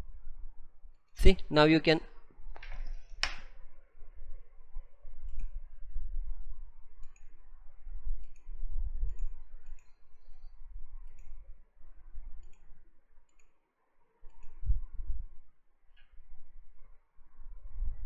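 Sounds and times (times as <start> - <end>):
faint scattered clicks: 5.2 - 5.6, 7.0 - 7.4, 8.2 - 11.4, 12.4 - 13.6, 14.3 - 14.6.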